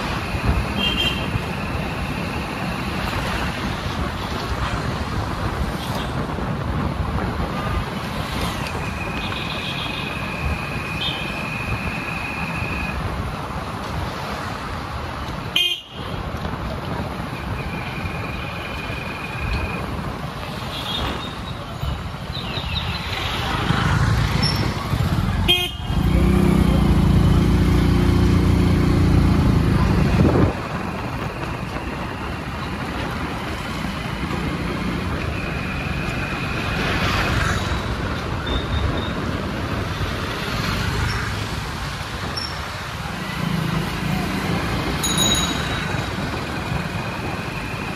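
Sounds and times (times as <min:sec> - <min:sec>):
traffic hum: 0:00.0 - 0:47.9
car horns tooting: 0:15.5 - 0:16.1, 0:25.4 - 0:26.1.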